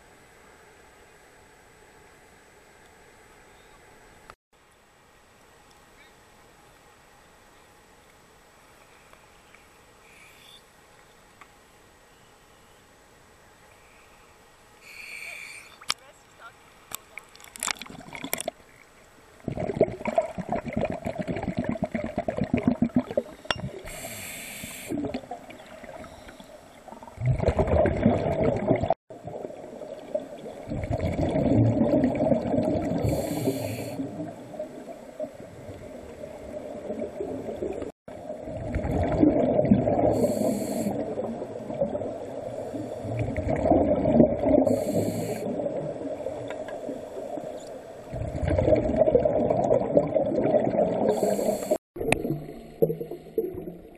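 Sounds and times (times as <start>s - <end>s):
hiss of inhaled air: 14.8s - 15.8s, 23.8s - 25.0s, 33.0s - 34.0s, 40.0s - 41.0s, 44.7s - 45.5s, 51.1s - 51.8s
scuba diver breathing through regulator: 14.8s - 15.8s, 23.8s - 25.1s, 32.9s - 34.1s, 40.0s - 41.0s, 44.6s - 45.6s, 51.0s - 51.8s
water moving: 14.8s - 24.0s, 24.9s - 53.9s
bubbling exhalations: 19.4s - 24.2s, 24.8s - 26.1s, 26.9s - 34.4s, 36.2s - 46.5s, 48.1s - 53.9s.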